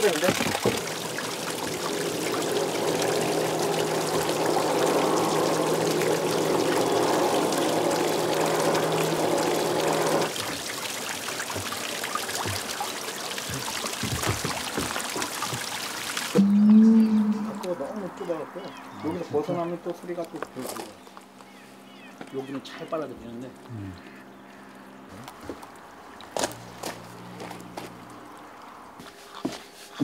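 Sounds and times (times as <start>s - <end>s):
hose water pouring into pond: 0.0s - 17.8s
faint water sound: 0.0s - 30.0s.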